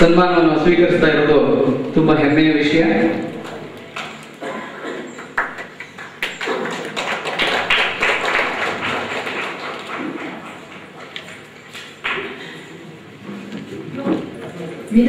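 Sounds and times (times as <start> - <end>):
audience applauding: 3.4 - 12.3.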